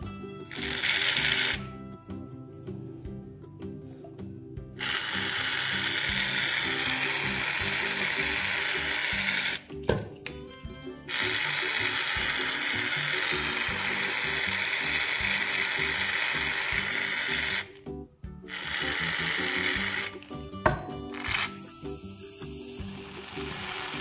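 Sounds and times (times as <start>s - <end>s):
background music: 0.0s - 24.0s
aerosol can spraying: 0.5s - 1.7s, 4.8s - 9.7s, 11.1s - 17.7s, 18.5s - 24.0s.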